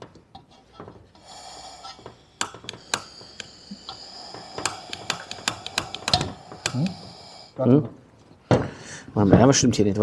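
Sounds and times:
gas hissing from stove: 1.2 - 7.6
igniter clicks: 2.4 - 3.5, 4.6 - 6.9.

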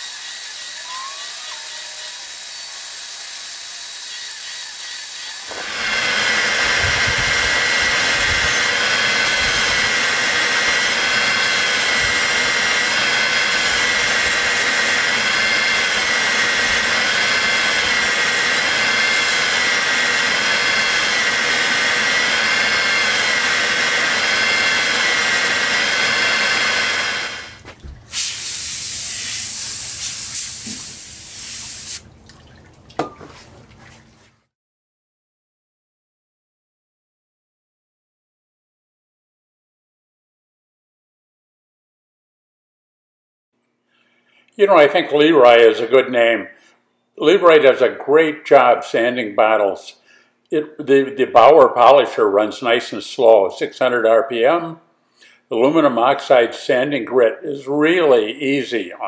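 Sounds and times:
glass grinding on sanding disc: 0.0 - 27.5.

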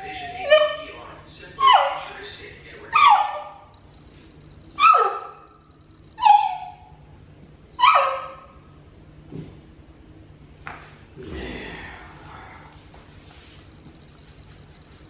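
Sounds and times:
puppy yelping barks: 1.5 - 2.2, 2.9 - 3.8, 4.7 - 5.6, 6.2 - 7.0, 7.7 - 8.6.

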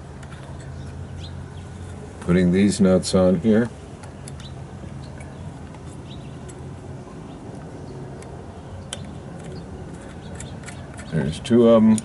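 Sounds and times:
steady low hum: 0.0 - 12.0
small metal clicks: 4.0 - 6.6, 7.5 - 12.0.

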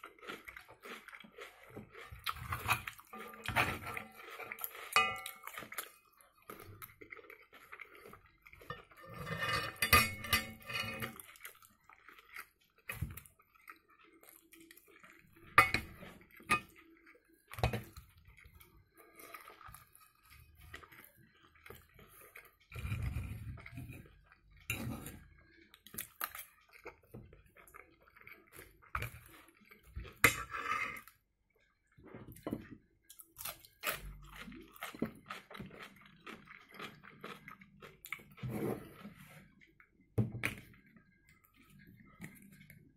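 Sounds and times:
person chewing: 0.0 - 9.2, 10.5 - 42.9
cutlery scraping a frying pan: 2.6 - 5.4, 8.7 - 11.2, 24.7 - 25.2, 30.2 - 31.0.

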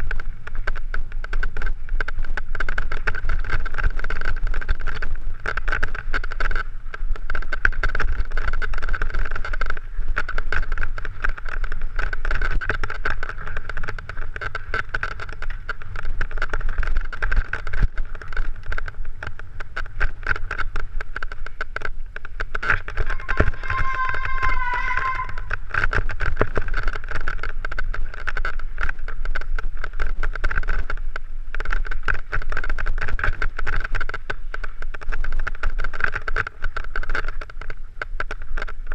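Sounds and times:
bike rattling over stones: 0.0 - 38.9
wind rumble: 0.0 - 38.9.

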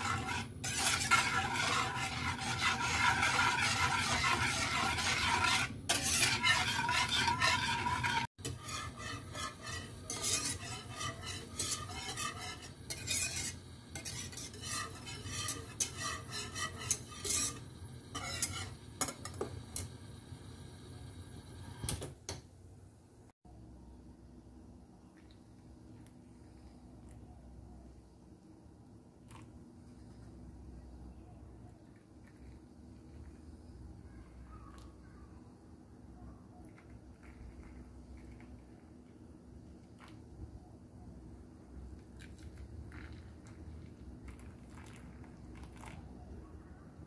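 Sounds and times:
whisk scraping a saucepan: 0.0 - 19.9.

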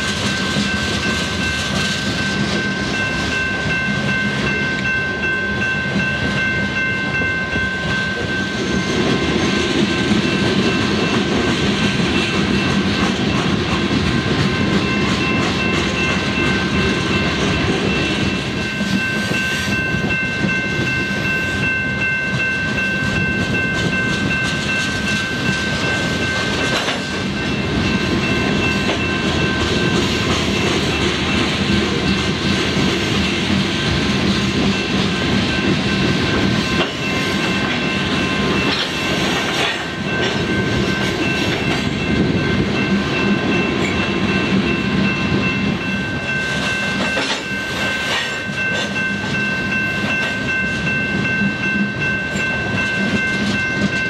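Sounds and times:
high-pitched ringing tones: 0.0 - 32.3
freight train rumbling past: 0.0 - 54.0.

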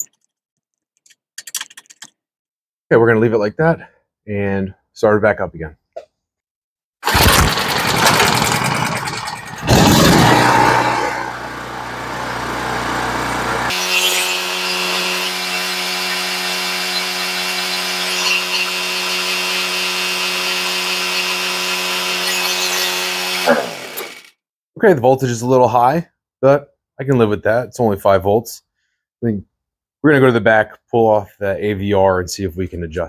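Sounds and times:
generator engine starting and running: 7.0 - 24.3.

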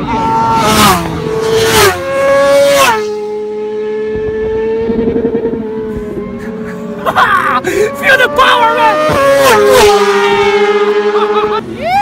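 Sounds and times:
racing motorcycles passing: 0.0 - 12.0.

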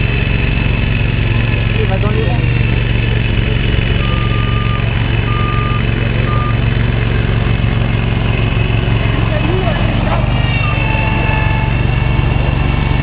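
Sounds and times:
mower engine humming: 0.0 - 13.0
short electronic beeps: 4.0 - 6.6.

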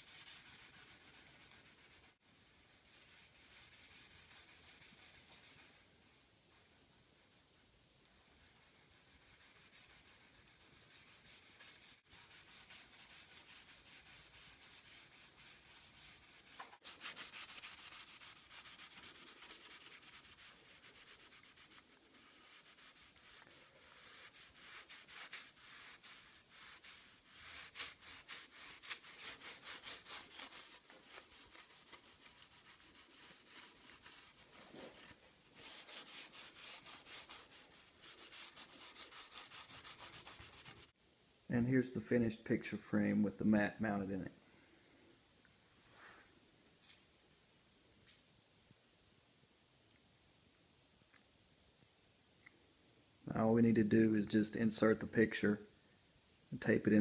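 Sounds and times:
rag scrubbing wood: 8.4 - 40.9.

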